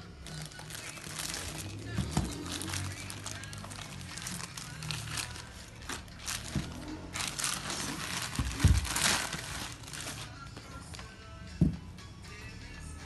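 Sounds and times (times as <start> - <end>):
plastic bag crinkling: 0.2 - 10.3.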